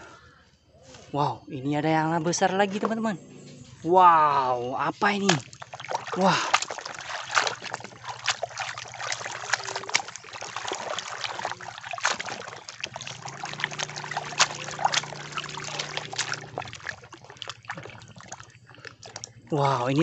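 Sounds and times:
water sloshing in a basin: 0:02.3 - 0:20.0
quick sharp splashes: 0:05.0 - 0:20.0.

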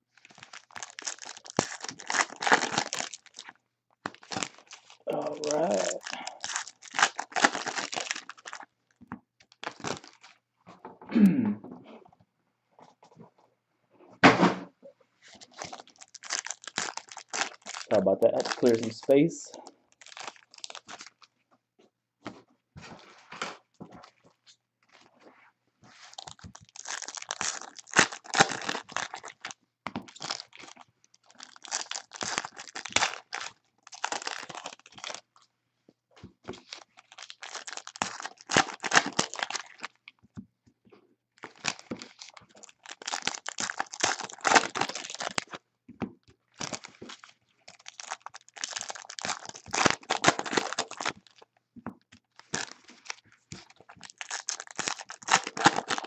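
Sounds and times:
card pack wrappers tearing and crinkling: 0:00.2 - 0:08.7, 0:09.4 - 0:10.4, 0:15.3 - 0:21.3, 0:26.0 - 0:35.3, 0:36.5 - 0:40.0, 0:41.4 - 0:45.6, 0:46.6 - 0:51.4, 0:52.3 - 0:56.0.

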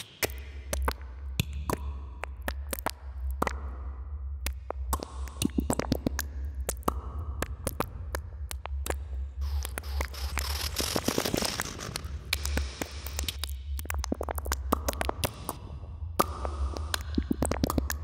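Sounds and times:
sharp clicks and crackles: 0:08.5 - 0:15.6
burst of static hiss: 0:09.4 - 0:13.4.

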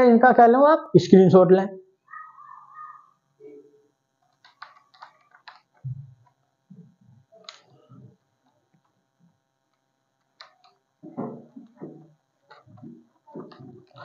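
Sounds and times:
faint clicks and knocks: 0:04.2 - 0:14.0.

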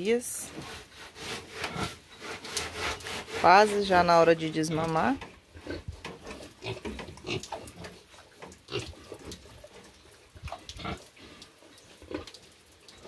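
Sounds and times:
pigs grunting: 0:05.6 - 0:09.7.

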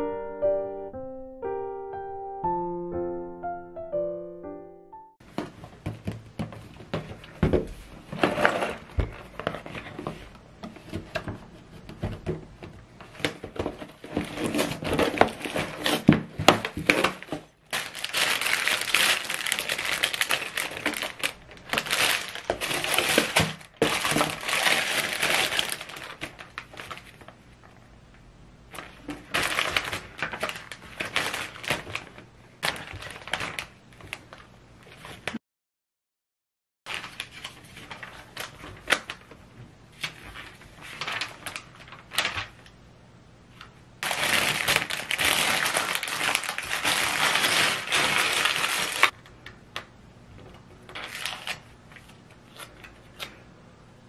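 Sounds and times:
plastic bags crinkling: 0:13.1 - 0:27.3, 0:28.7 - 0:34.4, 0:36.9 - 0:39.4, 0:40.0 - 0:42.6, 0:44.0 - 0:49.2, 0:50.9 - 0:53.2.

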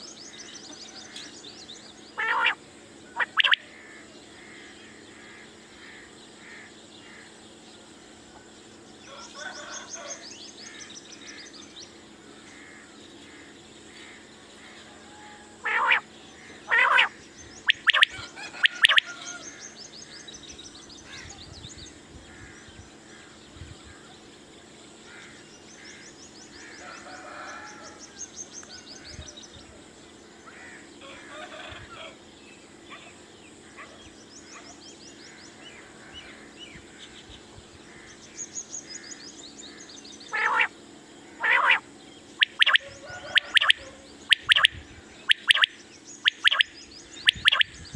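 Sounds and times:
faint bird chirping: 0:00.0 - 0:47.9
quail calling: 0:02.2 - 0:03.9, 0:15.6 - 0:19.6, 0:40.3 - 0:40.7, 0:41.4 - 0:47.7.

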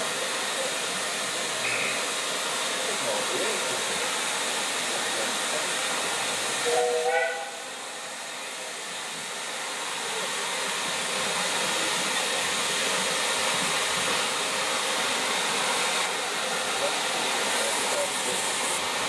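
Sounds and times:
steam locomotive hissing: 0:00.0 - 0:19.0
steam whistle toot: 0:06.6 - 0:07.8.

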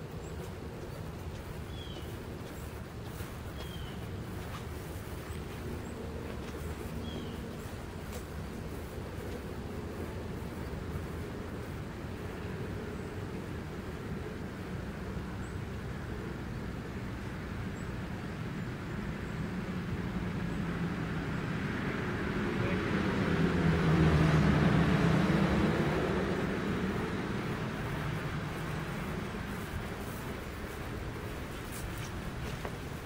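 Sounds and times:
vehicle driving past: 0:19.4 - 0:33.0.

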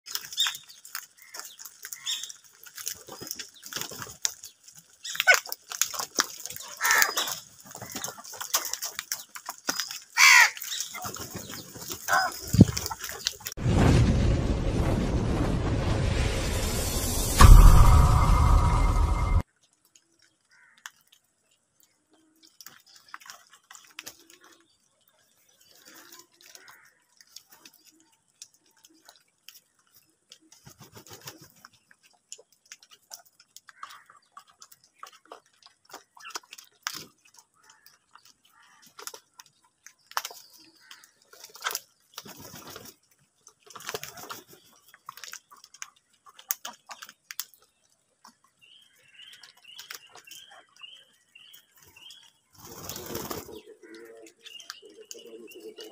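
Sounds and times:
crows pecking and tapping: 0:00.0 - 0:13.6, 0:19.5 - 0:55.9
soft crow calls: 0:06.7 - 0:08.1, 0:10.2 - 0:10.7, 0:20.5 - 0:21.0, 0:26.4 - 0:27.1
wings rustling: 0:51.7 - 0:54.1.

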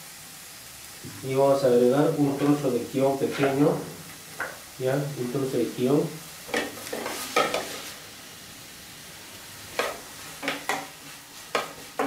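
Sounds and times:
onion and tomato sizzling in oil: 0:00.0 - 0:12.0
wooden spoon scraping a pan: 0:03.2 - 0:04.6, 0:06.5 - 0:08.0, 0:09.7 - 0:12.0.

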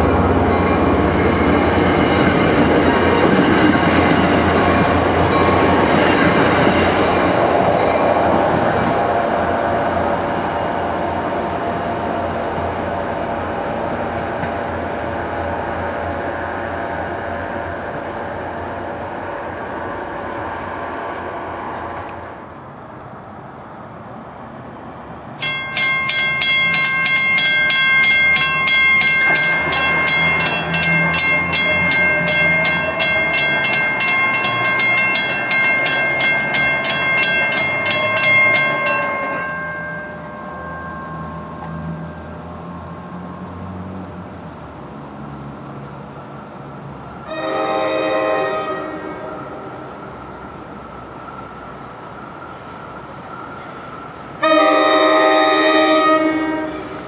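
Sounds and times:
crossing warning bells ringing: 0:00.0 - 0:12.1, 0:25.4 - 0:42.8, 0:46.7 - 0:57.0
train rumbling: 0:00.0 - 0:57.0.

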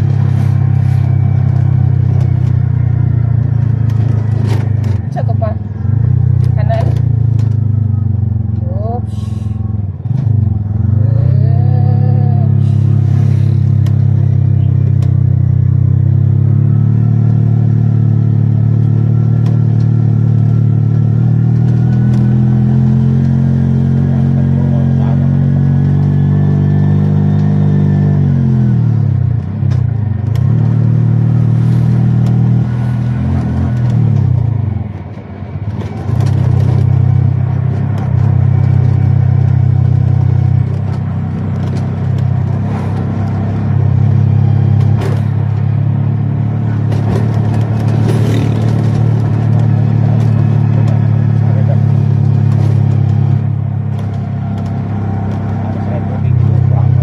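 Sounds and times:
road noise: 0:00.0 - 0:57.0
vehicle engine running: 0:00.0 - 0:57.0.

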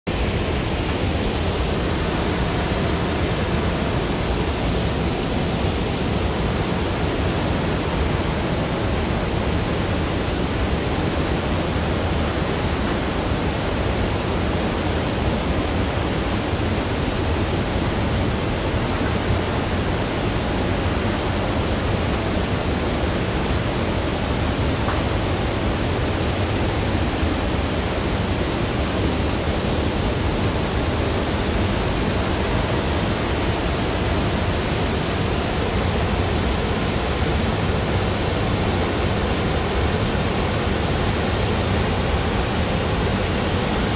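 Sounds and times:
heavy falling water rushing: 0:00.1 - 0:43.9.

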